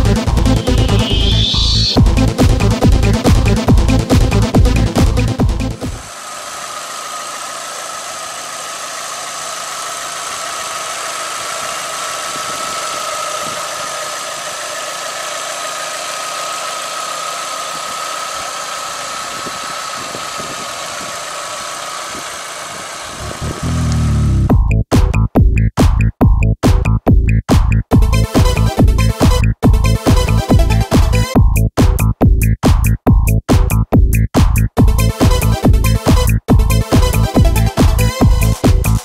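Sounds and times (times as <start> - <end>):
high-pitched whine: 0.0 - 2.7
car engine idling: 0.0 - 24.7, 34.8 - 39.0.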